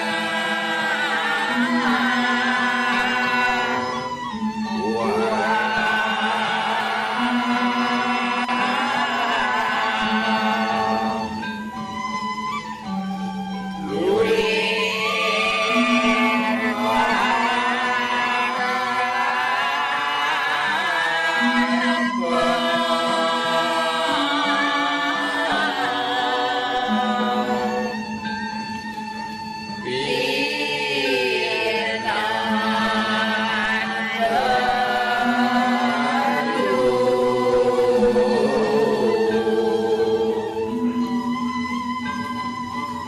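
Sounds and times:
person singing chant-like melody: 0.0 - 11.5, 13.8 - 28.1, 29.8 - 41.4.

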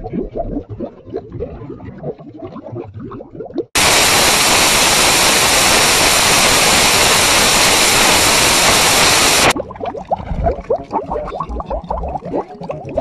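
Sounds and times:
loud white-noise static: 3.8 - 9.6.

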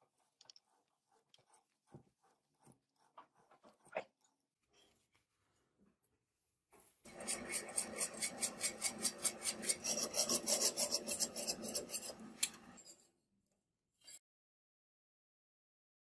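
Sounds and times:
file rasping on brass: 7.1 - 12.8
lathe running: 7.1 - 12.8
short scrape: 7.1 - 13.0.

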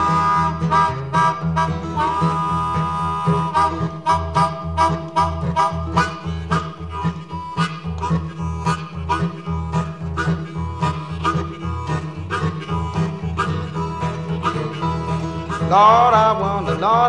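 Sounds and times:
acoustic blues guitar: 0.0 - 17.0
harmonica playing: 0.0 - 17.0.

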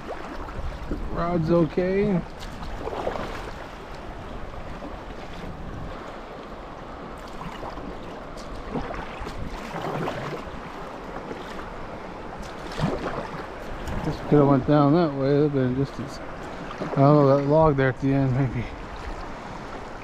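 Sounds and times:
wind on microphone: 0.0 - 6.4, 7.0 - 14.9
paddle strokes splashing: 0.0 - 20.0
rushing river water: 0.0 - 20.0.

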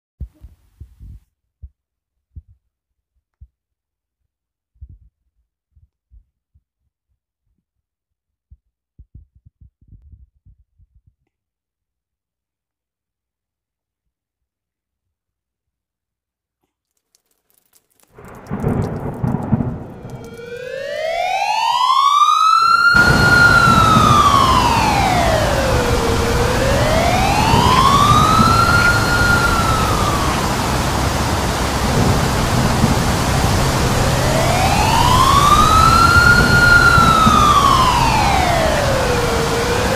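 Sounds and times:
rain: 16.9 - 39.9
wind: 17.0 - 39.9
thunder rumble: 18.2 - 39.9
tornado warning siren wailing: 18.2 - 39.9.

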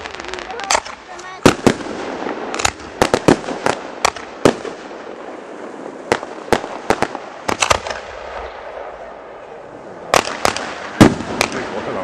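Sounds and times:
fireworks bangs: 0.0 - 12.0.

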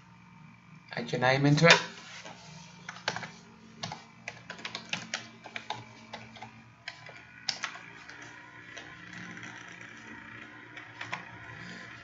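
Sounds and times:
typing on computer keyboard: 3.0 - 7.8.

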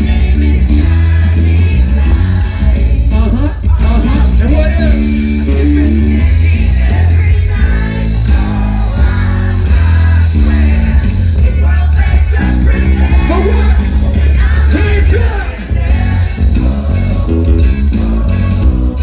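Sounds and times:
live band music: 0.0 - 19.0
man singing and shouting: 3.0 - 8.2, 11.3 - 15.8.

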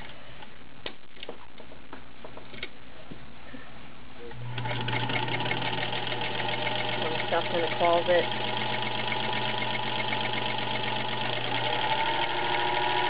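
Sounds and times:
sewing machine stitching: 4.4 - 13.0.

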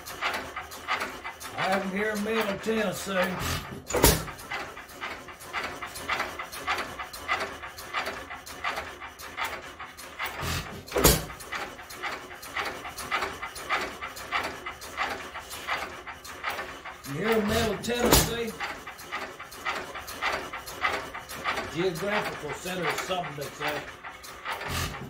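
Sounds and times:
engine mechanism clicking: 0.0 - 25.0
stationary engine firing: 17.2 - 18.7.

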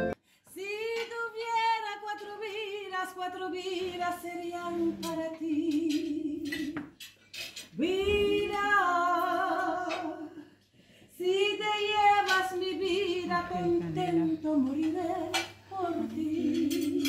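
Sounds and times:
woman singing unaccompanied: 0.0 - 6.9, 7.7 - 10.5, 11.2 - 17.0
breaths: 0.2 - 0.5, 10.4 - 11.2
cutlery clinking: 5.0 - 7.7, 14.8 - 17.0.

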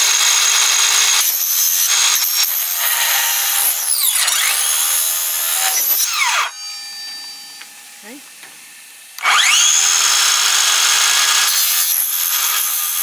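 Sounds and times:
circular saw cutting plastic panel: 1.2 - 6.6, 9.2 - 13.0.

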